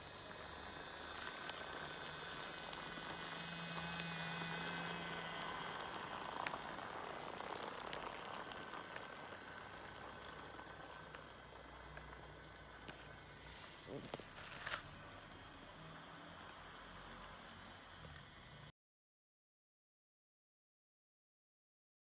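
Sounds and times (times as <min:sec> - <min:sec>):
toy train wheels rattling: 0:00.0 - 0:13.2
toy train motor whirring: 0:00.0 - 0:18.7.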